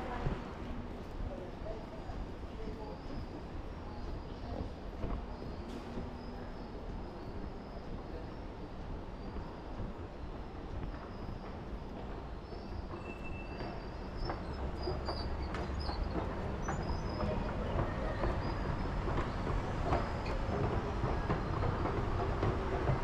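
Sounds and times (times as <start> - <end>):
train running: 0.0 - 23.0
high wheel squeals: 12.5 - 18.9.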